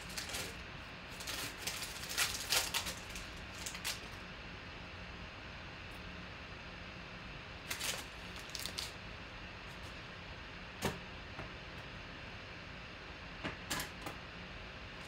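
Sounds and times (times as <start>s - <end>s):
cards rustling: 0.0s - 4.2s, 7.7s - 9.0s
low room hum: 0.0s - 15.0s.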